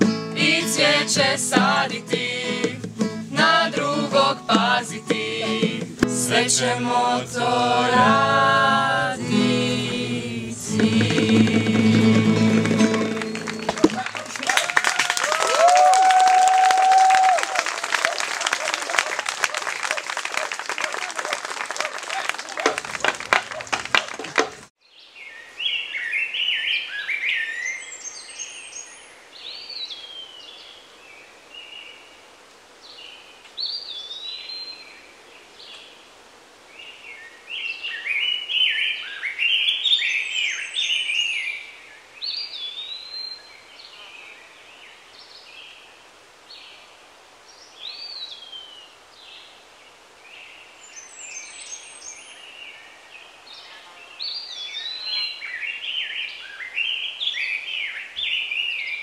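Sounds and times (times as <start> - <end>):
steady background hiss: 0.0 - 15.6, 24.2 - 59.0
songbirds singing: 50.3 - 59.0.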